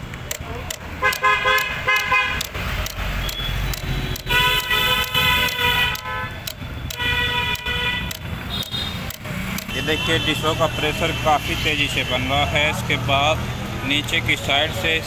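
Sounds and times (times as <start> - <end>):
vehicle horns honking: 1.0 - 2.5, 3.2 - 9.1, 9.7 - 12.7.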